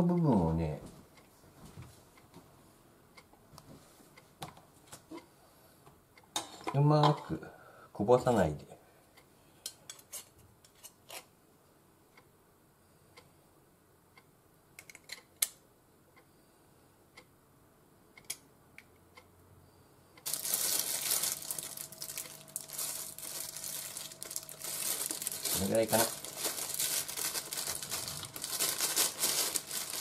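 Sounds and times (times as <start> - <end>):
plastic tube crinkling: 20.2 - 30.0.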